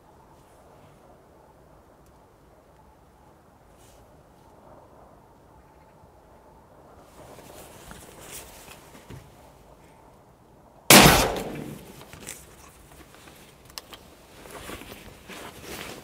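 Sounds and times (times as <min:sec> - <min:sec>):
rifle shot with echo: 0:10.9 - 0:12.0.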